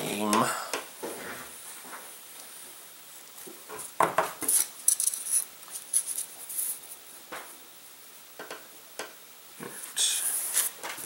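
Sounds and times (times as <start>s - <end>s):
small objects clicking and tapping: 8.4s - 9.2s.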